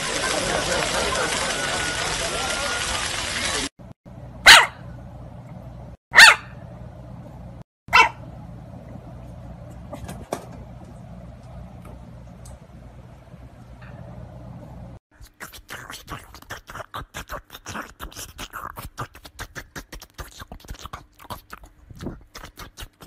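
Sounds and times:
puppy yapping: 0:04.5 - 0:04.8, 0:06.2 - 0:06.5, 0:07.9 - 0:08.2.

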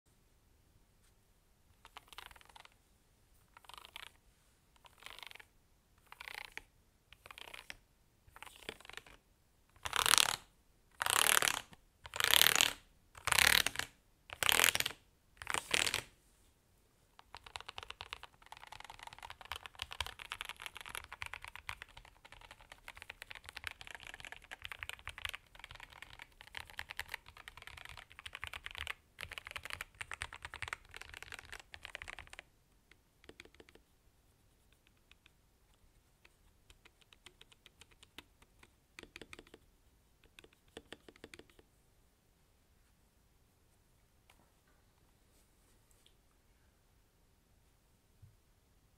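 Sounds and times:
typing on a mechanical keyboard: 0:01.8 - 0:02.7, 0:03.6 - 0:04.2, 0:06.1 - 0:06.6, 0:07.2 - 0:07.8, 0:08.4 - 0:09.2, 0:17.2 - 0:32.5, 0:33.2 - 0:33.8, 0:36.2 - 0:39.6, 0:40.2 - 0:41.6.

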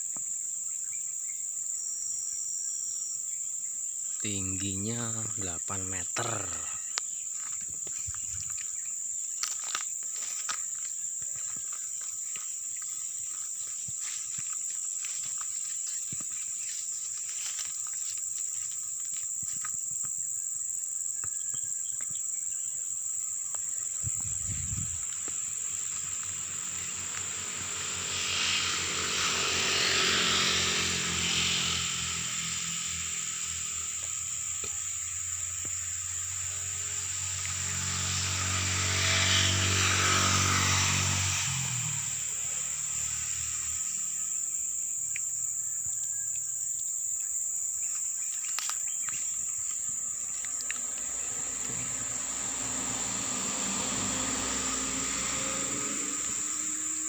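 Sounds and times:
insects droning: 0:00.0 - 0:57.0
vehicle engine passing: 0:04.2 - 0:18.7, 0:23.8 - 0:45.8, 0:49.3 - 0:57.0.

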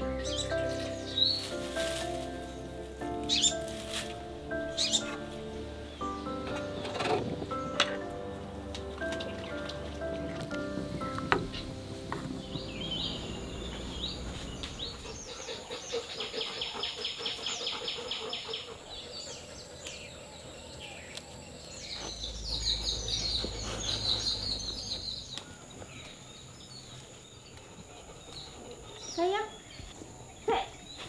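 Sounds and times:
music: 0:00.0 - 0:15.9
birds singing trills: 0:00.0 - 0:31.0
low rumble: 0:09.8 - 0:15.5.

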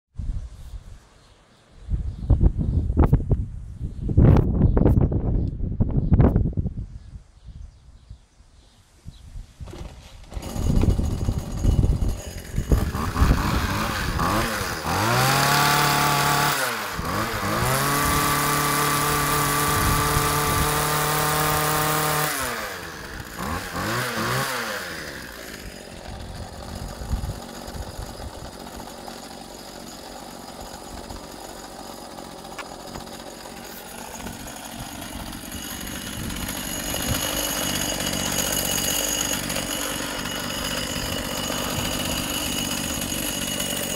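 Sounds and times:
hedge trimmer engine revving: 0:09.6 - 0:43.9.

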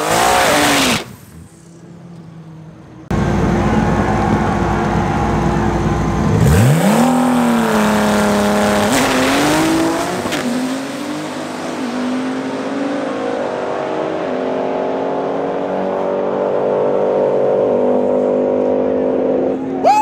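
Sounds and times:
race car engine revving: 0:00.0 - 0:01.1, 0:03.1 - 0:19.7.

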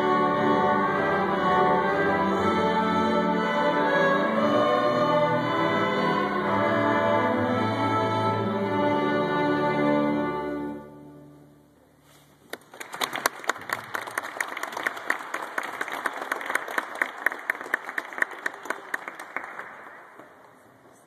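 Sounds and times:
audience clapping: 0:12.4 - 0:20.8.

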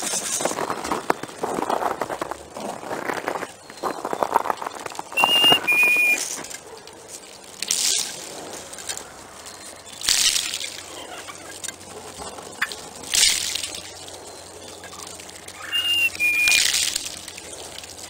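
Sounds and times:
turkeys feeding noisily: 0:00.0 - 0:18.0
short whistled notes: 0:05.2 - 0:06.2, 0:15.6 - 0:16.7.

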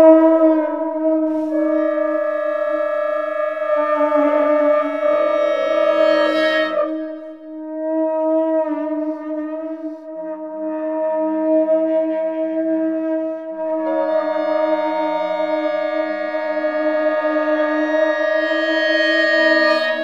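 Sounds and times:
bright held wind tone: 0:00.0 - 0:10.5, 0:13.0 - 0:20.0
low wind instrument drone: 0:00.0 - 0:20.0
lower held note: 0:00.0 - 0:20.0.

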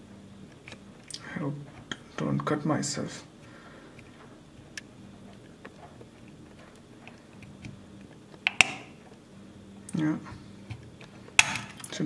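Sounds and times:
plastic clip snapping: 0:11.4 - 0:12.0.

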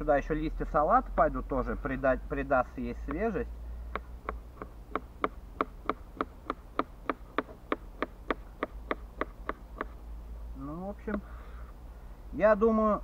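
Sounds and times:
knife chopping on cutting board: 0:04.0 - 0:10.0.

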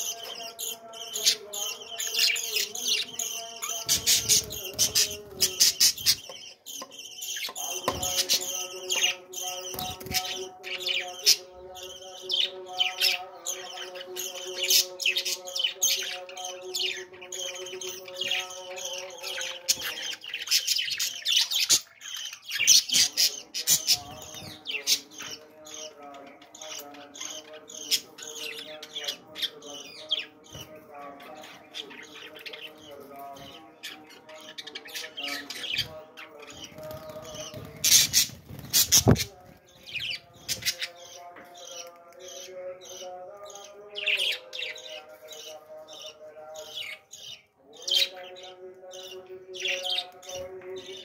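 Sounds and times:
budgerigars chattering: 0:00.0 - 0:30.6, 0:31.3 - 0:51.0.

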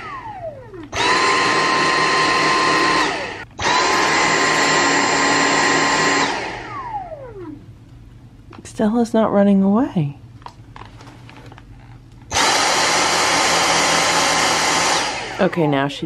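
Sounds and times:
stick vacuum motor whine: 0:00.0 - 0:07.6, 0:12.3 - 0:15.9.

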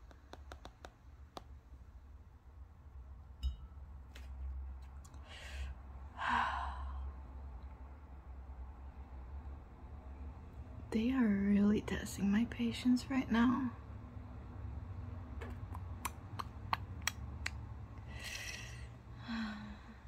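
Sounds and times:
low steady hum: 0:00.0 - 0:20.0
woman sighing: 0:06.2 - 0:07.0, 0:18.3 - 0:20.0.

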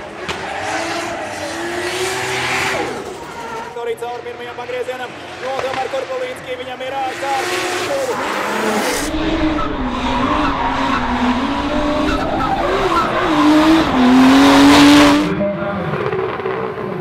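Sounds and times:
tyres squealing and skidding: 0:00.0 - 0:04.0, 0:07.0 - 0:15.3
car engine revving high: 0:07.0 - 0:15.4.

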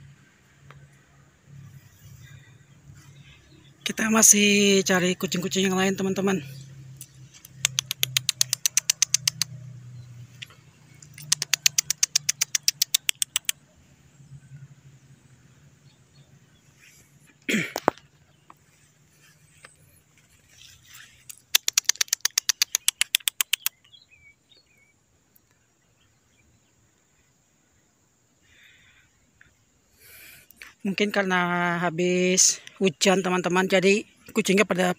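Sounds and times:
rapid clicking: 0:07.0 - 0:09.5, 0:11.0 - 0:13.6, 0:21.3 - 0:23.7.

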